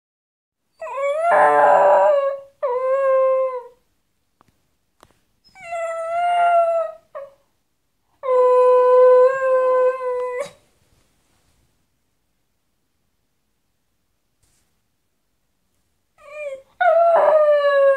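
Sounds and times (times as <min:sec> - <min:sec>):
dog howling: 0:00.8 - 0:03.8.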